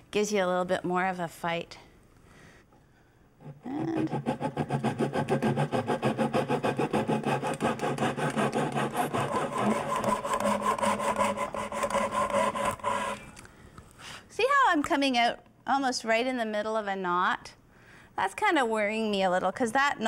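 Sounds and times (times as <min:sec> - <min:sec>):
hand saw cutting wood: 0:03.4 - 0:13.4.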